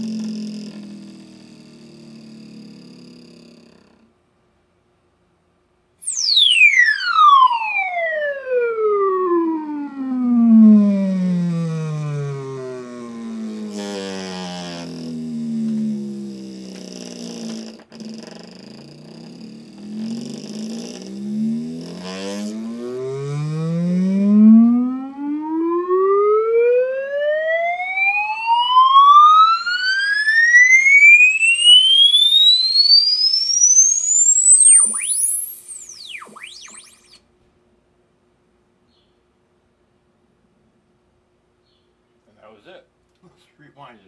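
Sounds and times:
tone sweeping upward: 0:06.0 - 0:16.4, 0:19.8 - 0:37.2
short stepped test tones: 0:09.4 - 0:16.9, 0:28.4 - 0:37.2.

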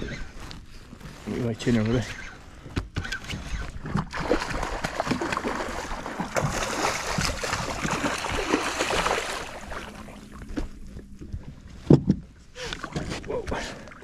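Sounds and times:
fish thrashing water splashing: 0:03.9 - 0:10.4.

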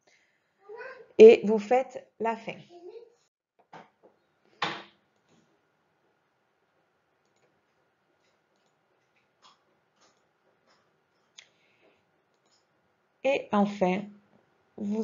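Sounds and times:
faint room hiss: 0:00.0 - 0:15.0.

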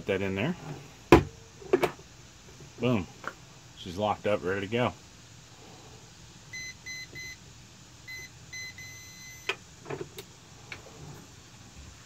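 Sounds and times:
long electronic beep: 0:06.5 - 0:07.4, 0:08.1 - 0:09.5.

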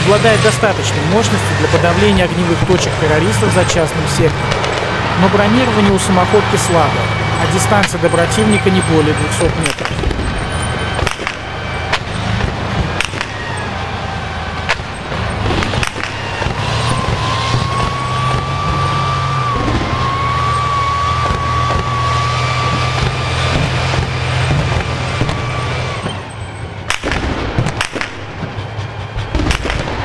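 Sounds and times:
diesel engine running: 0:00.0 - 0:30.0
sharp bangs: 0:00.0 - 0:30.0.

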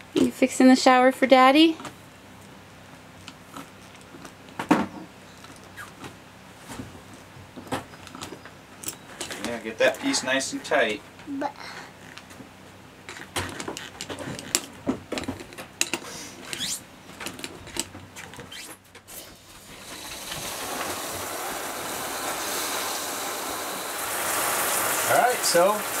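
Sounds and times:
water rushing from shower: 0:19.4 - 0:26.0.

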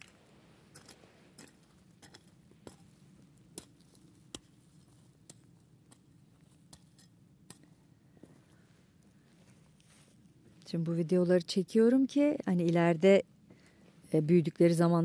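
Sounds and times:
footsteps crunching on soil: 0:08.2 - 0:10.8.

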